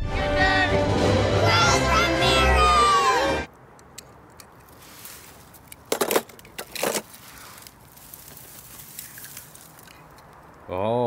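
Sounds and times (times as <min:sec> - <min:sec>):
dry grass and leaves rustling: 0:04.1 - 0:10.7.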